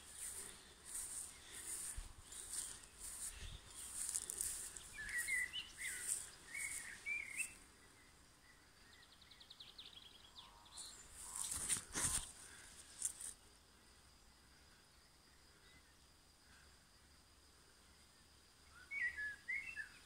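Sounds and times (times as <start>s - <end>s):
leaves rustling against phone: 0.0s - 7.6s, 11.2s - 13.4s
small birds chirping: 0.0s - 13.4s
bird trill: 2.4s - 7.6s.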